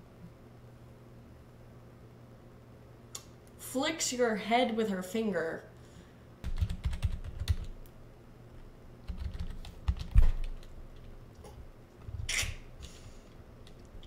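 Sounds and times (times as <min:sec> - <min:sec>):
typing on computer keyboard: 0:06.4 - 0:07.8, 0:09.1 - 0:11.1.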